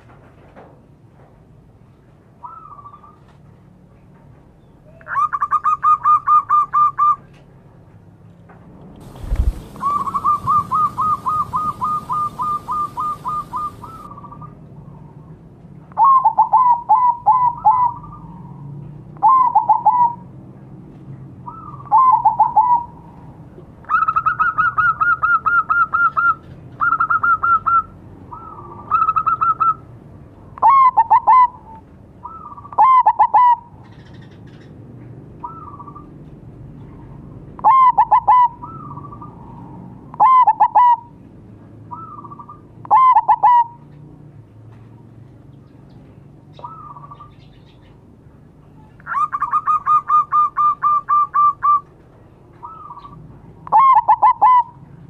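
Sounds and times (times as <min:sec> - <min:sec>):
hiss: 0:09.0 - 0:14.1
doves cooing: 0:09.0 - 0:14.4, 0:37.6 - 0:41.1, 0:52.6 - 0:54.8.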